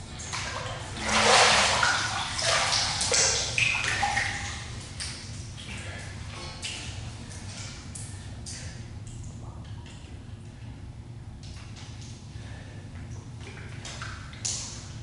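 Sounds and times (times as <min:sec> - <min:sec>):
water dripping: 0:00.0 - 0:10.7, 0:13.0 - 0:15.0
steady low hum: 0:00.0 - 0:15.0
water splashing and pouring: 0:00.1 - 0:05.2.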